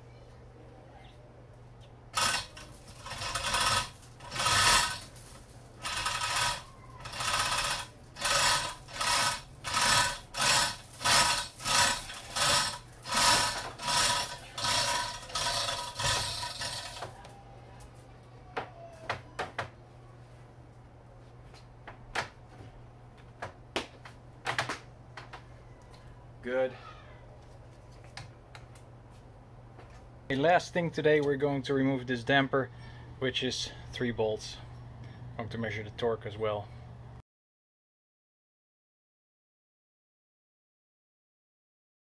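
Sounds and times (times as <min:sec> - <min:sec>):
chain links rattling through hoist: 0:02.2 - 0:17.2.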